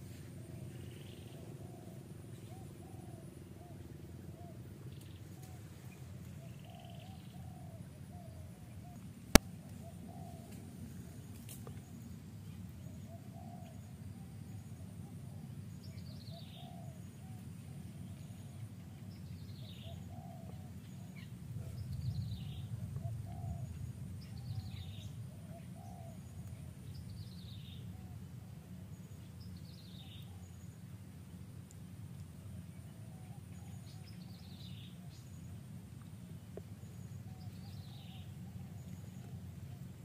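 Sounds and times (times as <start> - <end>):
low outdoor rumble: 0.0 - 40.0
weaker low bird calls: 14.8 - 30.6, 36.8 - 40.0.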